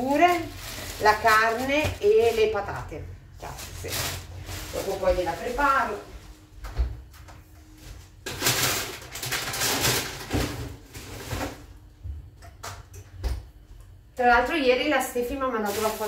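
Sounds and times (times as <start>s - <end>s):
plastic bag rustling: 0.0s - 6.6s, 7.8s - 11.8s, 15.3s - 16.0s.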